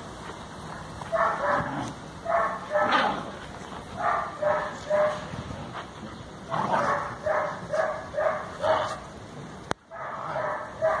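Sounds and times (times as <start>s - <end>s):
dog barking: 1.1s - 3.1s, 4.0s - 5.2s, 6.7s - 9.0s, 9.9s - 11.0s.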